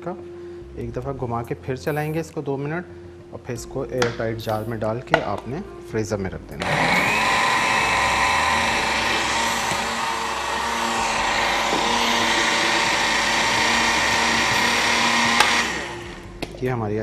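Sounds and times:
electric blender motor whining: 0:06.6 - 0:16.5.

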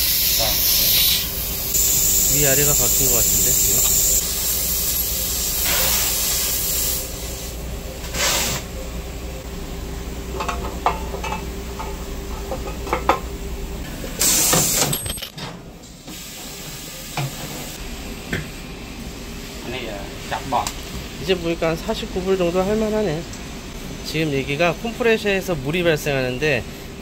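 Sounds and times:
compressed air hissing: 0:00.0 - 0:08.9, 0:14.0 - 0:14.9, 0:16.0 - 0:17.9
steady machine hum: 0:00.0 - 0:27.0.

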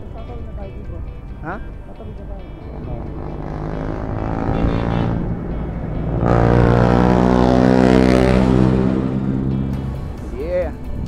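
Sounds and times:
vehicle engine passing by: 0:01.9 - 0:10.3.

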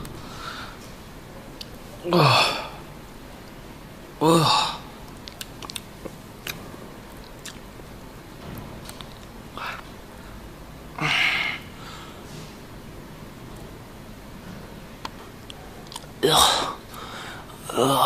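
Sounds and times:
clicking mouth noises: 0:05.1 - 0:06.6, 0:07.2 - 0:07.7, 0:15.0 - 0:16.1.

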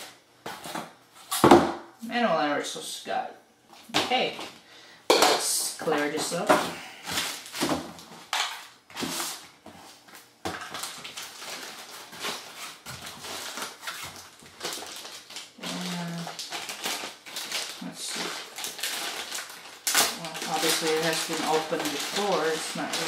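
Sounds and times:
packaging rustling and crinkling: 0:06.4 - 0:23.0.

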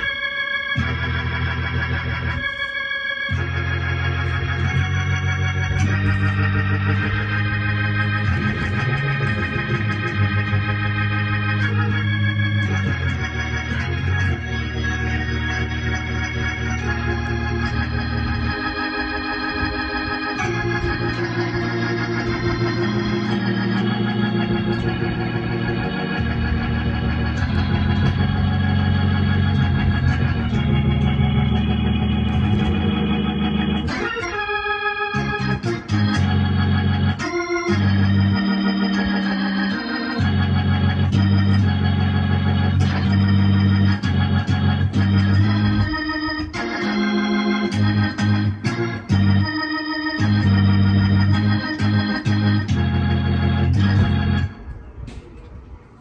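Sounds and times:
moving bass line: 0:00.0 - 0:54.9
electronic keyboard organ chords: 0:00.0 - 0:56.0.

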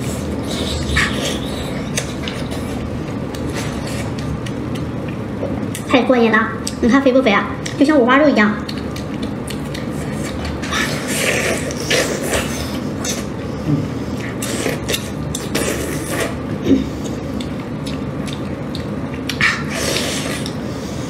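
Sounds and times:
chewing and sucking smacks: 0:00.0 - 0:05.9, 0:08.6 - 0:13.5, 0:14.1 - 0:21.0.

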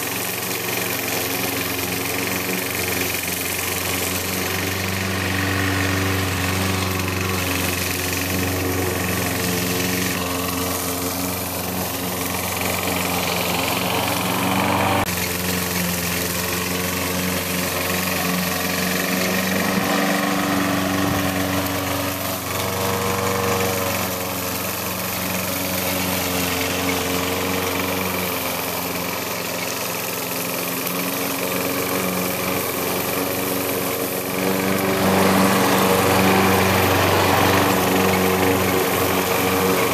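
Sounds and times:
lawn mower engine running: 0:00.0 - 0:39.9.

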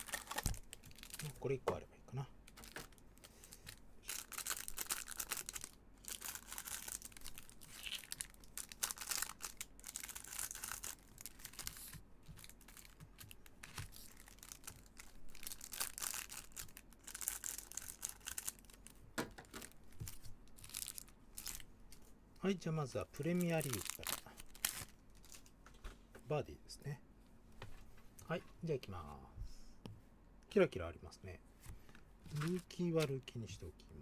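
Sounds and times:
plastic wrapper tearing and crinkling: 0:00.0 - 0:01.6, 0:02.4 - 0:03.0, 0:03.7 - 0:21.7, 0:23.2 - 0:25.5
cards being handled: 0:10.5 - 0:14.8, 0:31.6 - 0:33.3.

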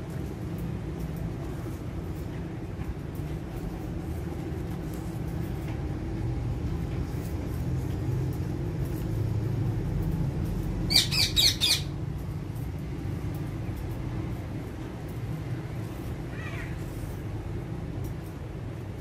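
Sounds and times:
parakeet squawking: 0:10.9 - 0:11.9.

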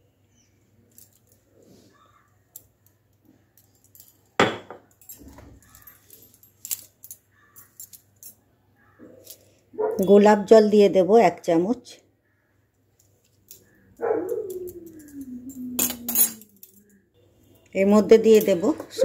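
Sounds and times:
kitchen utensils clinking: 0:15.8 - 0:16.8.

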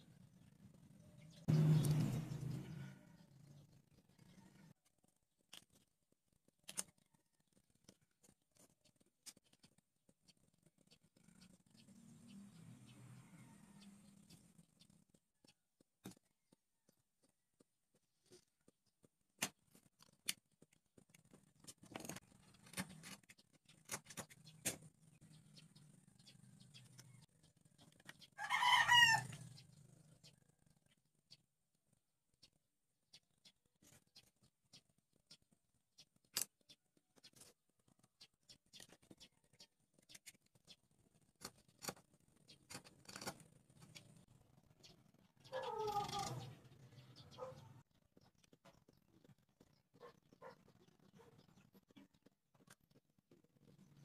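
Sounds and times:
wooden sticks clicking and snipping: 0:05.4 - 0:05.9, 0:06.5 - 0:09.8, 0:19.4 - 0:24.9, 0:36.2 - 0:37.6
animal call: 0:45.4 - 0:46.6.

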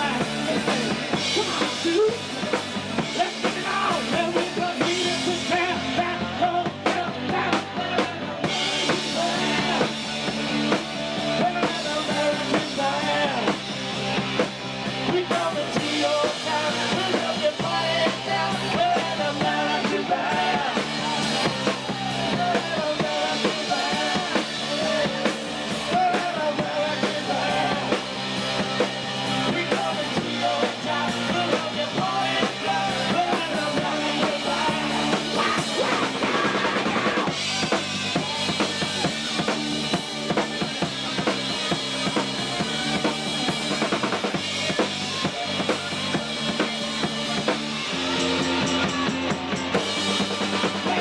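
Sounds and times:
sustained bass notes: 0:00.0 - 0:51.0
wavering guitar or vocal lines: 0:15.0 - 0:39.5.

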